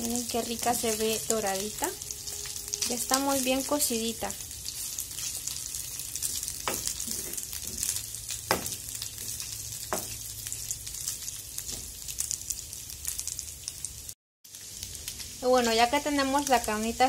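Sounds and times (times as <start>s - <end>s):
meat sizzling in a frying pan: 0.0s - 17.0s
wooden spatula knocking on pan: 6.6s - 7.9s, 8.5s - 8.8s, 9.9s - 10.2s.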